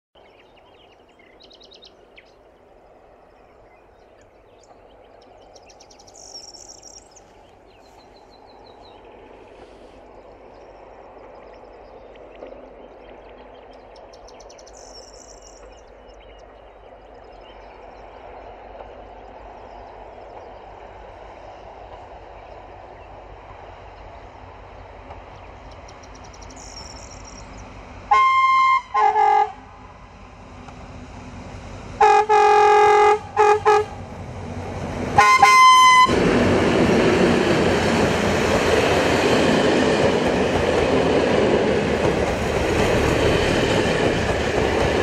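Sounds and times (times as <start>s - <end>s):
birds singing: 0.2s - 27.9s
diesel locomotive rumble: 15.5s - 45.0s.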